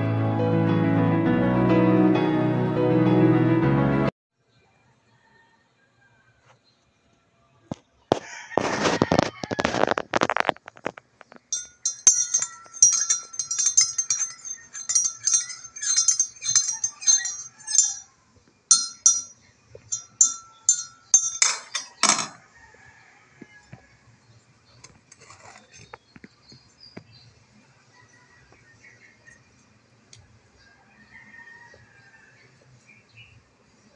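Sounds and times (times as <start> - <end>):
metal spoon clinking in mug: 11.5 - 18.1, 18.7 - 22.4
spoon scraping clatters: 11.5 - 18.1, 18.7 - 22.4, 25.1 - 26.0.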